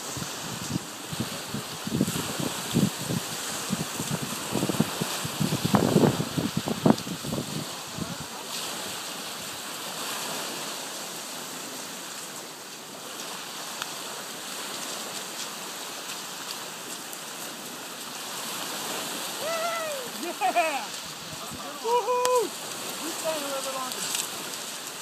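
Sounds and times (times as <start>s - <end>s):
small waves breaking on beach: 0.0s - 25.0s.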